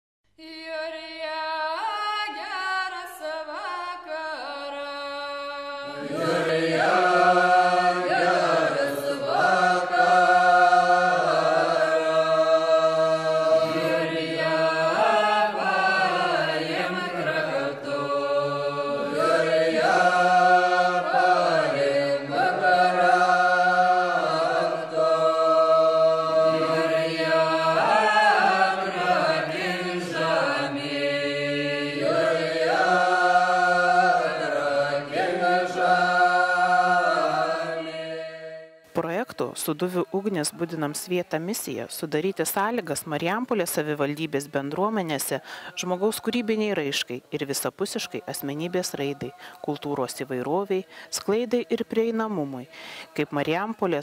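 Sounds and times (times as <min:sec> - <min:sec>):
voices singing sustained lines: 0:00.4 - 0:54.0.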